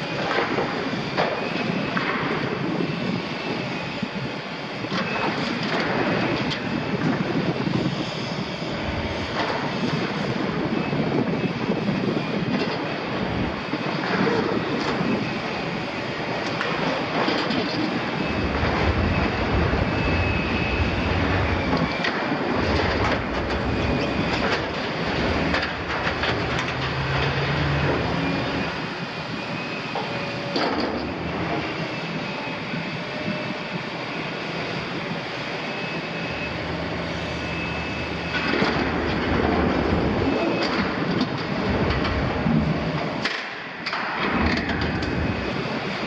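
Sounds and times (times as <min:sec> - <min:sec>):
hydraulics whining: 0:00.0 - 0:46.0
diesel engine running: 0:02.8 - 0:43.2
metal screeching: 0:23.6 - 0:30.2.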